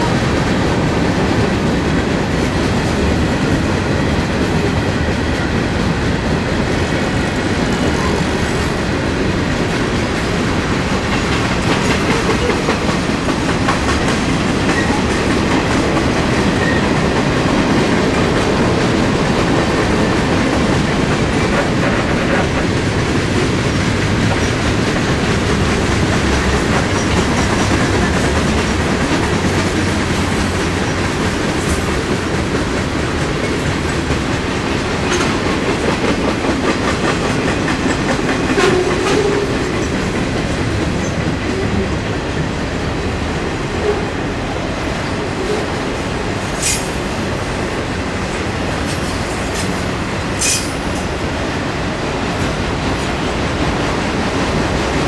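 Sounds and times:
steel wheels rolling on rails: 0:00.0 - 0:55.0
wheels clicking over rail joints: 0:10.7 - 0:42.0, 0:48.2 - 0:51.3.

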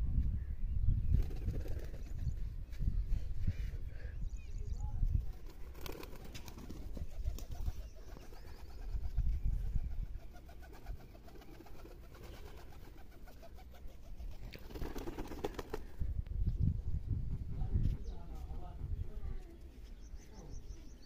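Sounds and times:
wind rumble on microphone: 0:00.0 - 0:11.1, 0:15.7 - 0:21.0
pigeons cooing: 0:05.6 - 0:16.0.

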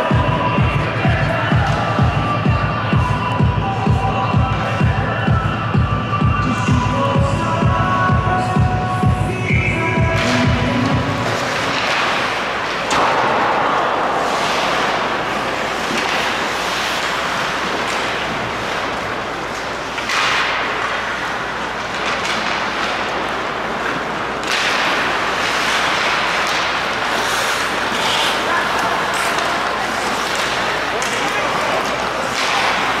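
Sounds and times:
ice rink crowd rushing noise: 0:00.0 - 0:33.0.

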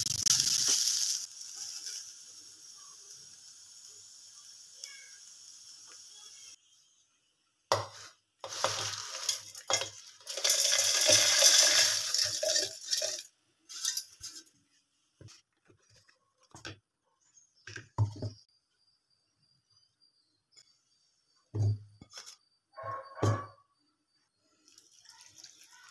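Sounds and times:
spices rattling in steel jar: 0:00.0 - 0:02.2, 0:08.5 - 0:14.5.

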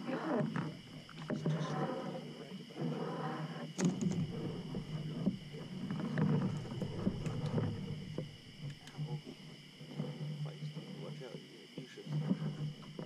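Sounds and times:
frogs croaking: 0:00.0 - 0:13.0
insects trilling: 0:00.0 - 0:13.0
gear clicking and knocking in boat: 0:03.8 - 0:09.2.

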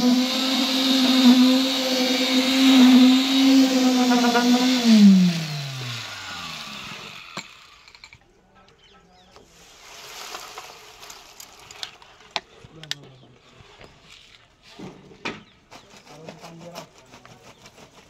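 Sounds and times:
wet concrete pouring: 0:00.0 - 0:06.0.

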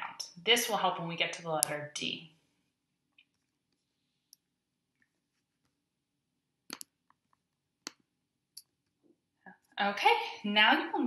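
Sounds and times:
computer mouse clicks: 0:06.7 - 0:08.0.

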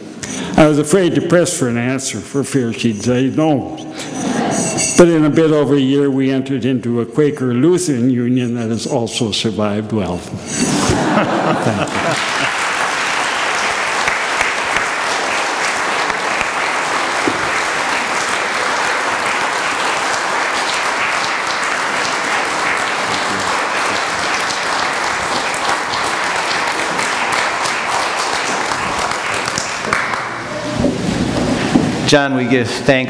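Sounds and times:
crowd clapping: 0:10.9 - 0:30.7.

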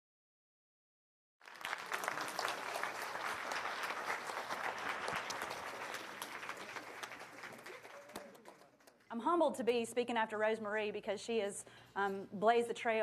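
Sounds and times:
audience applauding: 0:01.4 - 0:09.1.

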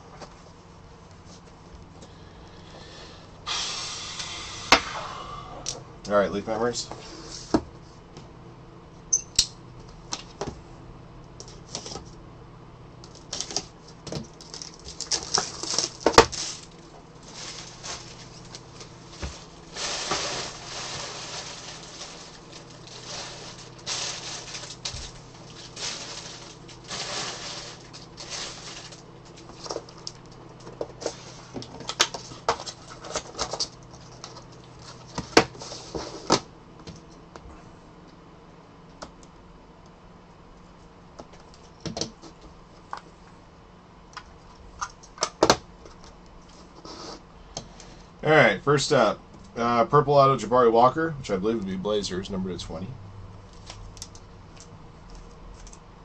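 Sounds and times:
plastic wrapping crinkling: 0:13.1 - 0:30.4, 0:53.4 - 0:55.8.

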